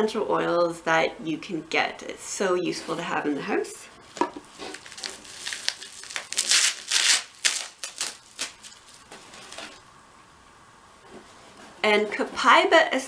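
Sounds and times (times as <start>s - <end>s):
plastic packaging crinkling: 4.1s - 9.8s.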